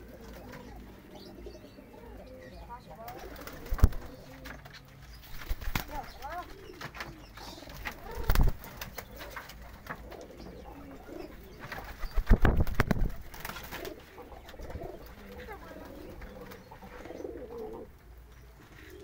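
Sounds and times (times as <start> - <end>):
pigeons cooing: 0.0 - 19.0
wing flaps and claps: 3.0 - 10.2, 11.6 - 14.6.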